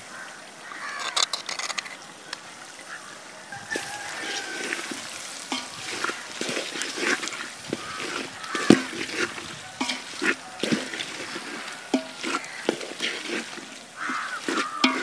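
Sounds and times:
food sizzling in oil: 3.5 - 15.0
spatula scraping a metal pot: 3.8 - 15.0
spatula knocking against pot: 5.5 - 6.2, 7.7 - 13.4, 14.0 - 15.0.

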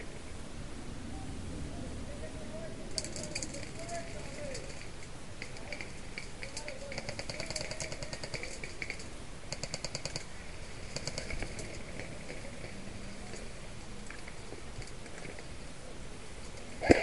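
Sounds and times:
airsoft rifles firing bursts: 5.4 - 12.7, 16.8 - 17.0
single airsoft shots: 16.8 - 17.0.

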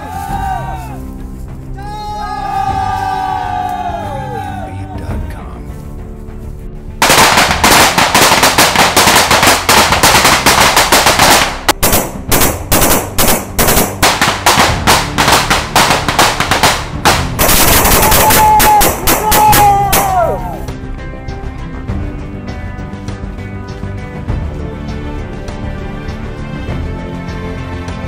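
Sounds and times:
automatic rifle fire: 7.0 - 20.1.

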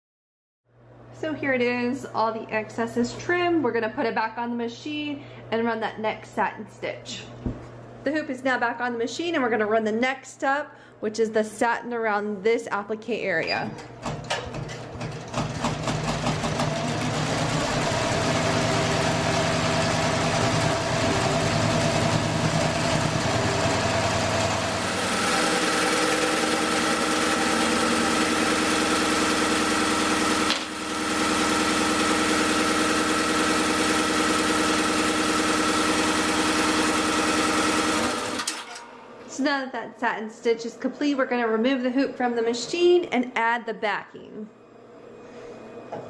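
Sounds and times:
embroidery machine running: 15.0 - 39.0.

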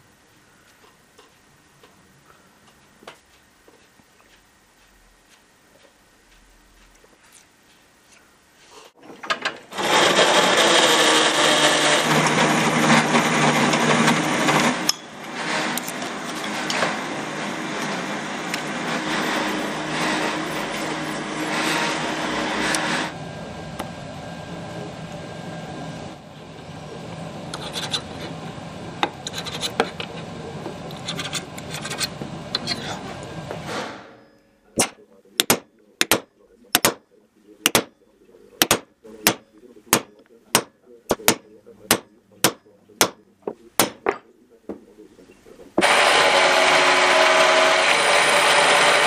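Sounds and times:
power tool motor hum: 9.6 - 23.2, 45.8 - 49.0
abrasive scraping: 9.7 - 23.2, 27.5 - 34.0
light scrapes and clicks: 29.2 - 30.3, 30.9 - 33.0.

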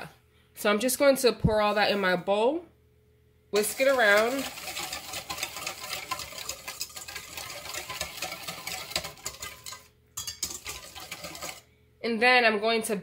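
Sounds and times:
wire whisk beating in metal bowl: 3.6 - 11.7.

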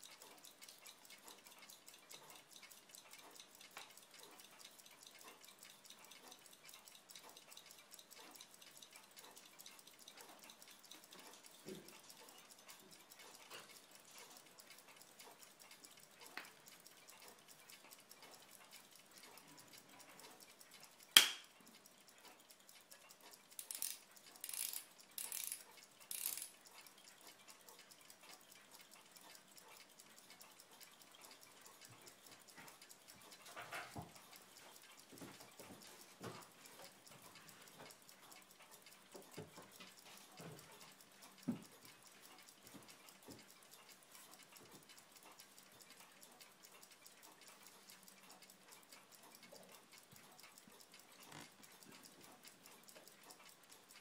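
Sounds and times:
tiny fast ticking: 0.0 - 54.0
tweezers clicking on metal: 21.1 - 22.1, 23.2 - 26.8.

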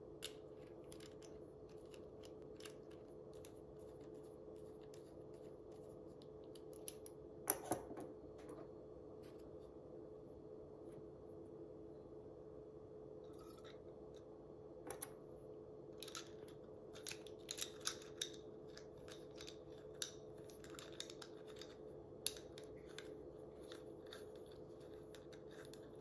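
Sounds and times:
small parts clicking and scraping: 0.2 - 7.7, 16.0 - 26.0.

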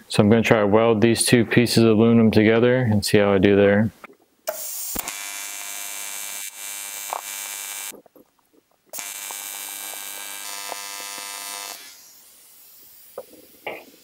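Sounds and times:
welding arc buzzing: 4.5 - 8.1, 8.9 - 14.0.

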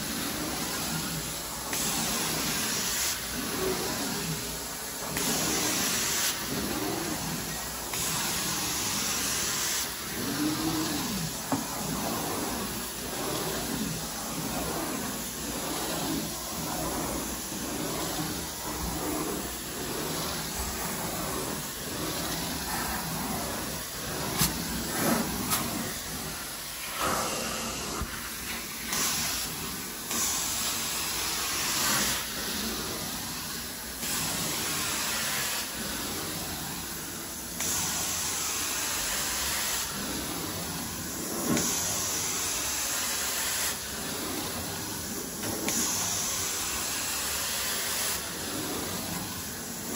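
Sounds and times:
extraction wand suction hiss: 0.0 - 49.9
spray hiss: 0.0 - 49.9.

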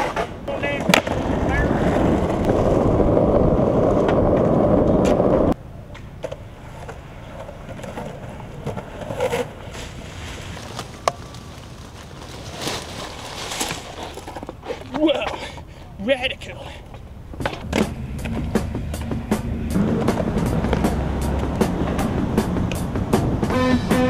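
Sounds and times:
skateboard clicks and knocks: 0.0 - 3.0, 3.7 - 9.7
skateboard wheels rolling on pavement: 0.0 - 24.0.

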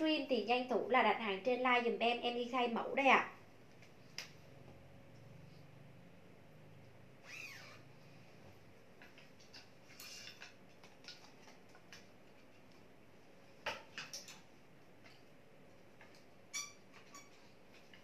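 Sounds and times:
faint clicks and taps: 9.0 - 12.9.

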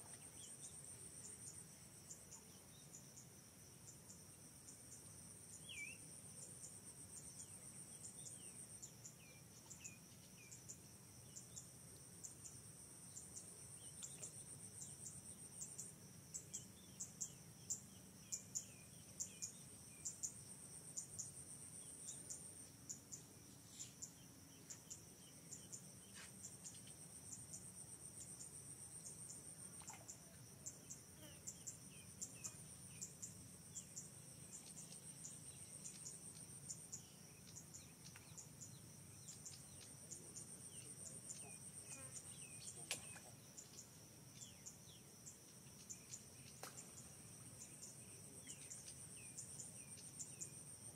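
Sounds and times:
insects chirping: 0.0 - 50.9
faint bird chirps: 28.2 - 50.9.

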